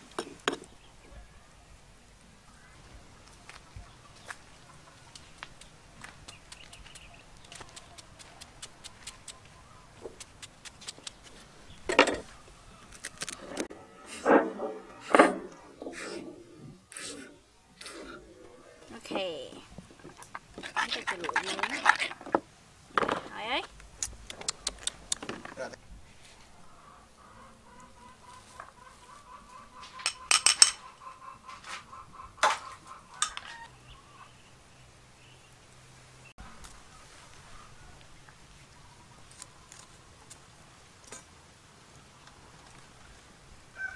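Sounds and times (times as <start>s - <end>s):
chickens clucking: 3.4s - 11.2s, 14.3s - 22.4s, 26.6s - 34.4s.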